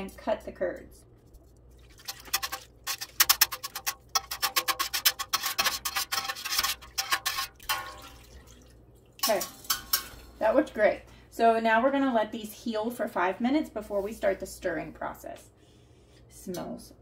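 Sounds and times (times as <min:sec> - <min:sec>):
whisk scraping through curd: 0:01.2 - 0:07.9.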